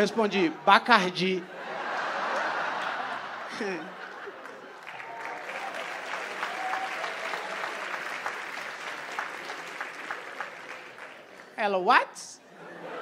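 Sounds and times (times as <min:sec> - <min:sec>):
audience applauding: 0:02.0 - 0:11.6.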